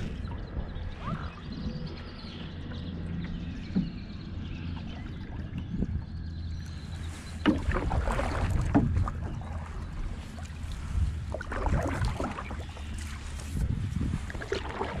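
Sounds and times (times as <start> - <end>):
wind rumbling on microphone: 0.0 - 15.0
paddle splashing in water: 7.2 - 15.0
paddle knocking on canoe: 7.4 - 9.6.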